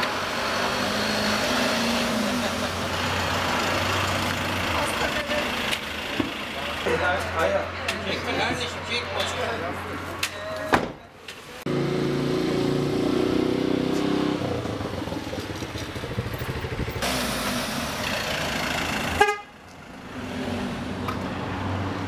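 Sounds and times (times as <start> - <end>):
minibus engine running: 0.0 - 7.6
street hum: 0.0 - 22.0.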